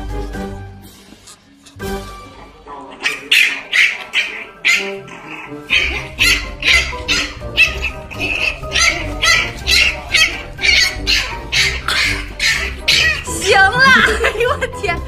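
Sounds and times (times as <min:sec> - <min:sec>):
puppy yelping: 0:02.9 - 0:14.1.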